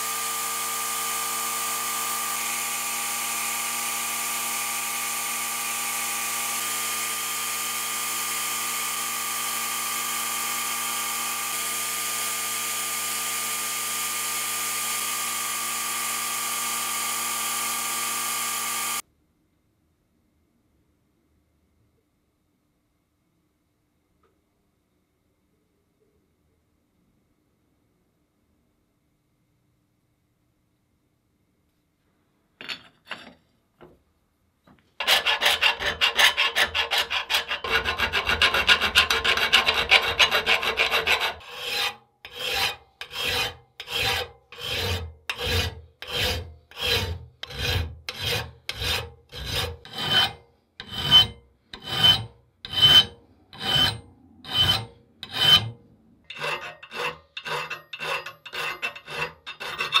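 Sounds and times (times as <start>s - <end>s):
hand file rasping on metal: 35.0s - 60.0s.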